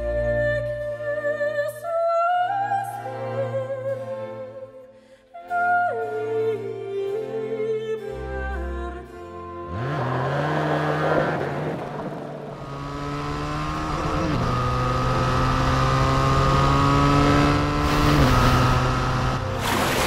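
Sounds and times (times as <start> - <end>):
motorcycle engine accelerating: 9.7 - 20.0.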